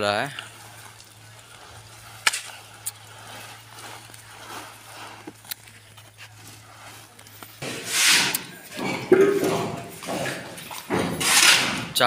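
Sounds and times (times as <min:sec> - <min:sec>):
low steady hum: 0:00.0 - 0:07.6
shovel scraping sand and gravel: 0:00.0 - 0:08.8, 0:10.1 - 0:12.0.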